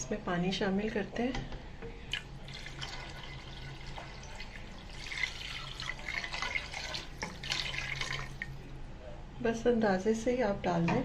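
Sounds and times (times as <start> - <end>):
water pouring and splashing: 2.1 - 8.6.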